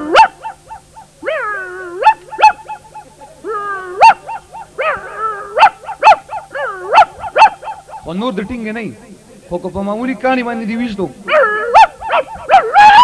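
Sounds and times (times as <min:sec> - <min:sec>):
dog barking: 0:00.0 - 0:03.2, 0:03.9 - 0:08.2, 0:11.2 - 0:13.0
dog whining: 0:00.0 - 0:08.1, 0:11.3 - 0:13.0.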